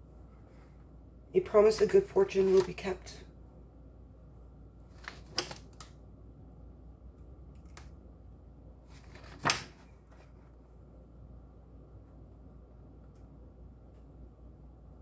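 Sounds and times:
faint low room hum: 0.0s - 15.0s.

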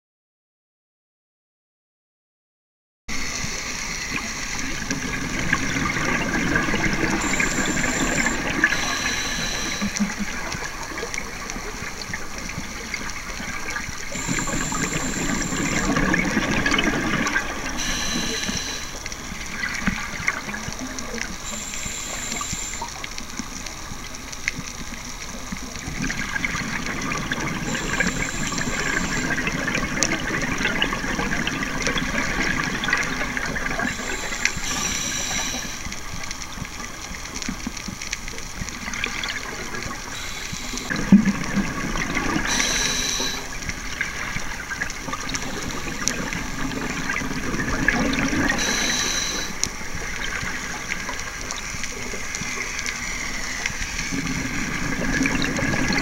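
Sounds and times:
short high-pitched tones: 6.6s - 10.2s, 14.1s - 19.0s, 20.8s - 23.0s, 27.6s - 29.8s, 33.8s - 35.9s, 40.1s - 41.0s, 42.4s - 43.5s, 48.5s - 49.6s
diver breathing through regulator: 17.8s - 19.0s, 42.5s - 43.5s, 48.6s - 49.6s.

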